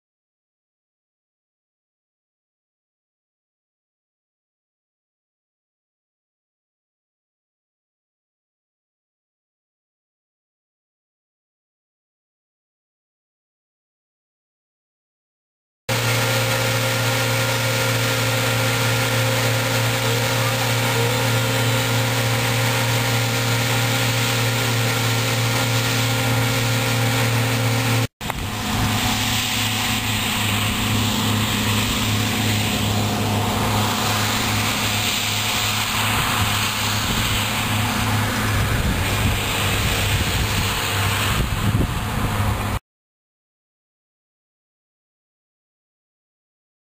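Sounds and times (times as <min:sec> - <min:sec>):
hiss: 0:15.9 - 0:42.6
combine harvester running: 0:15.9 - 0:42.8.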